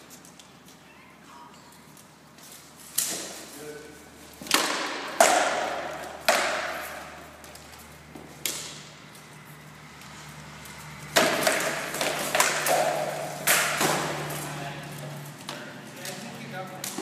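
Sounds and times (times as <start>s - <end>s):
swords cracking against shields: 2.9s - 3.5s, 4.4s - 7.5s, 11.2s - 14.6s.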